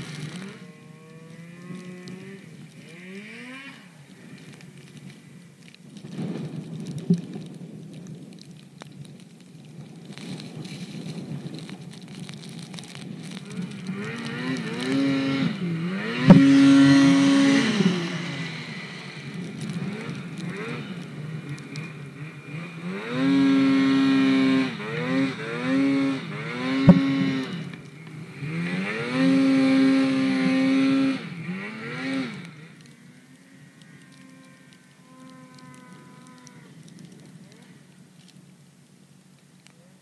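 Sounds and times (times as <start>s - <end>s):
snowmobile engine revving: 0.0s - 4.9s, 12.7s - 38.0s.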